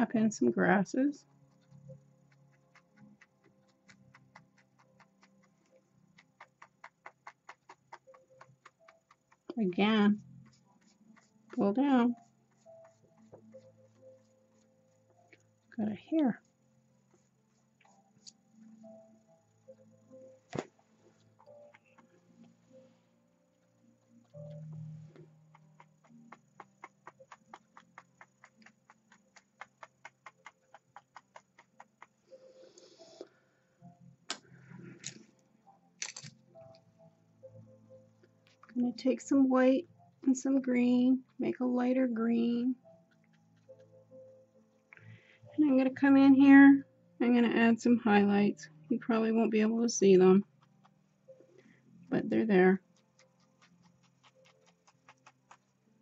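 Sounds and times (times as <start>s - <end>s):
brush tapping on canvas: 1.6s - 15.4s, 24.2s - 32.8s.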